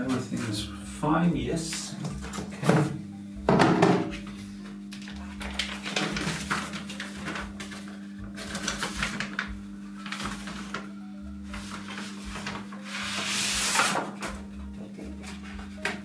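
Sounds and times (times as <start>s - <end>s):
background music with low drone: 0.0s - 16.0s
paper rustling and handling: 4.3s - 14.4s.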